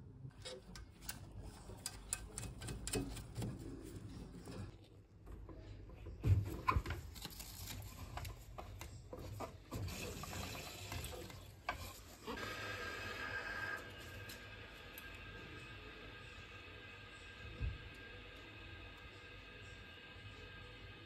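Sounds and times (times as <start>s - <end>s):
water hissing through valve: 9.8s - 16.4s.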